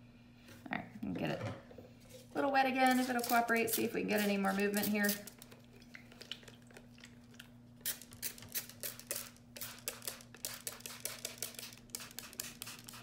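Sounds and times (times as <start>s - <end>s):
spray bottle spritzing: 2.9s - 5.4s, 7.8s - 13.0s.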